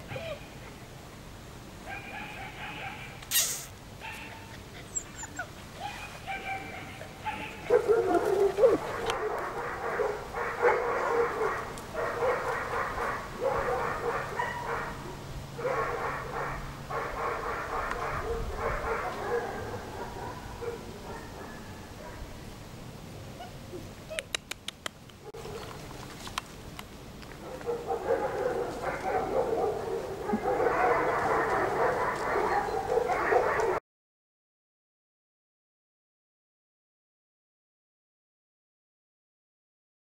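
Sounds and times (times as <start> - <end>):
puppies whining and yipping: 3.3 - 7.6.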